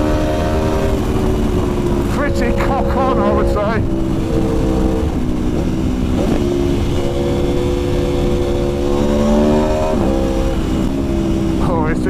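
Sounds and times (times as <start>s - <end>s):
motorcycle engine accelerating: 0.0s - 12.0s
wind noise: 0.0s - 12.0s.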